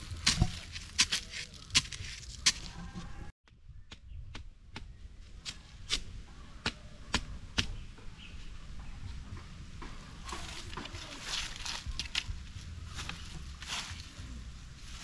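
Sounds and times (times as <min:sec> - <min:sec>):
machete chopping bamboo: 0:00.2 - 0:02.7.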